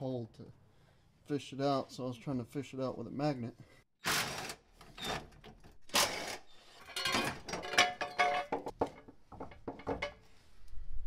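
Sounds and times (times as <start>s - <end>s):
metal clanking: 6.8s - 10.2s.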